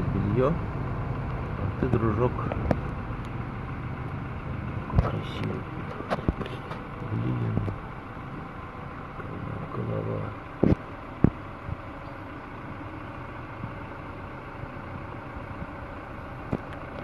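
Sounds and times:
background motor hum: 0.0s - 17.0s
light ticks: 2.4s - 3.4s.

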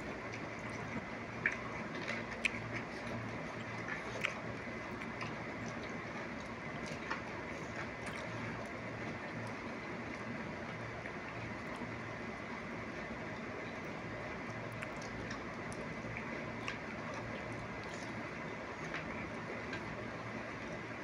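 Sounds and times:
tomato being bitten and chewed: 0.0s - 9.6s, 14.5s - 20.0s
steady background hum: 0.0s - 21.0s.

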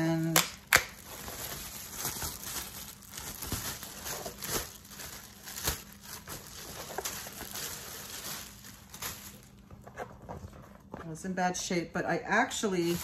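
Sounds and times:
plastic bag crinkling: 0.0s - 10.5s, 12.5s - 13.0s.

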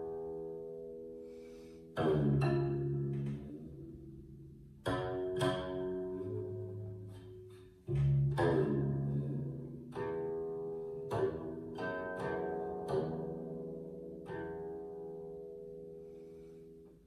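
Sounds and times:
plucked zither notes: 0.0s - 17.0s.

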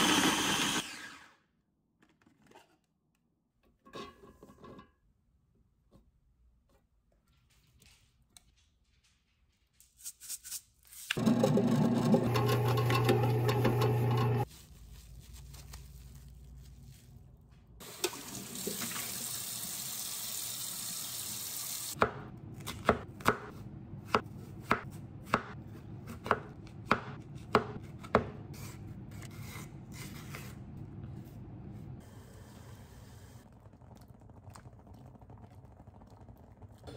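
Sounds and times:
knife chopping onion on board: 22.0s - 30.5s.

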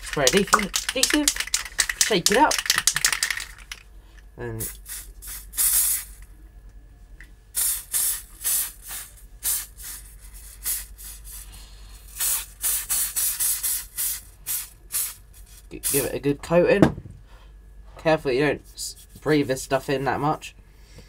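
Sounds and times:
aerosol spray hissing bursts: 4.6s - 6.2s, 7.6s - 11.5s, 12.1s - 16.1s.

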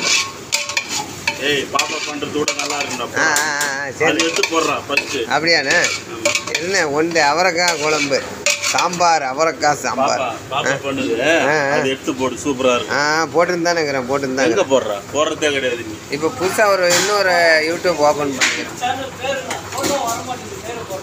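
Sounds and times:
ladle scraping metal pot: 0.0s - 9.6s
curry sizzling: 0.0s - 21.0s.

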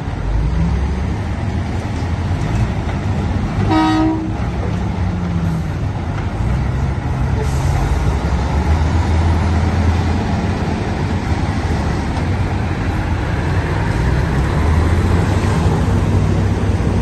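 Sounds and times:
heavy diesel engines droning: 0.0s - 17.0s.

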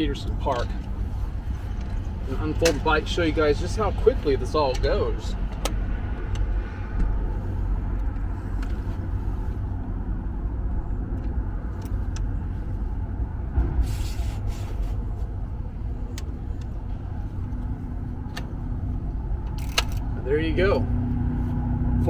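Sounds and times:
low rumble: 0.0s - 22.0s
bike hinges clicking: 19.4s - 20.1s.

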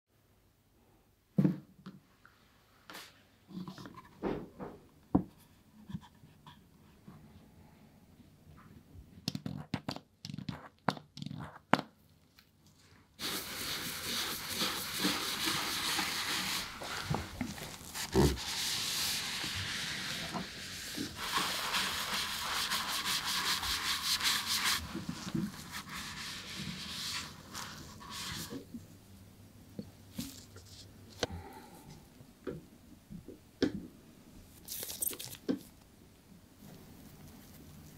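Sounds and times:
shoe brush scrubbing leather: 13.2s - 28.6s.

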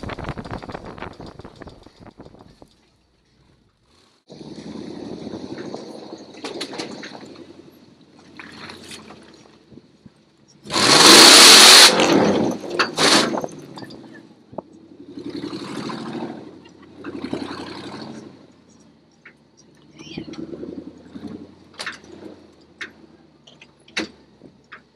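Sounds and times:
truck engine revving: 3.8s - 8.9s, 10.6s - 24.9s.

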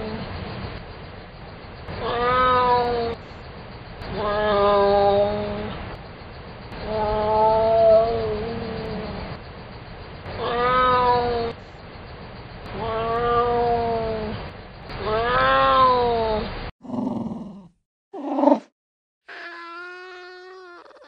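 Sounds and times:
wild cat yowling: 2.0s - 3.2s, 4.1s - 5.7s, 10.4s - 11.5s, 12.7s - 14.3s, 19.3s - 21.0s.

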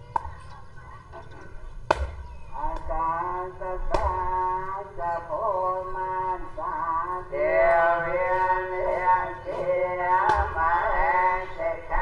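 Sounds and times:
man singing: 2.6s - 12.0s.

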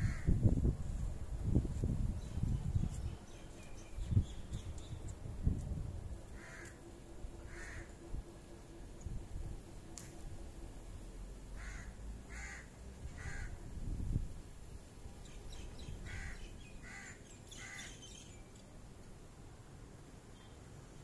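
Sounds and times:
low rumble on microphone: 0.0s - 12.2s
bird calling: 15.8s - 18.4s.

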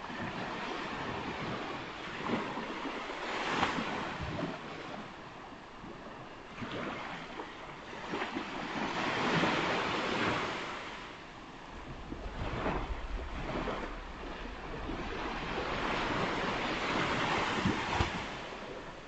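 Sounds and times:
ocean surf breaking on beach: 0.0s - 5.2s, 6.4s - 19.0s.

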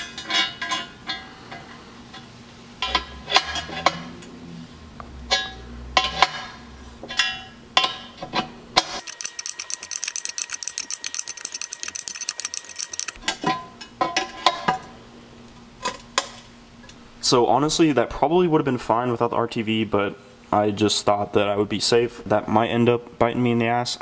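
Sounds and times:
fast even ticking: 9.0s - 13.2s
wrench clinking on metal: 9.0s - 13.2s.

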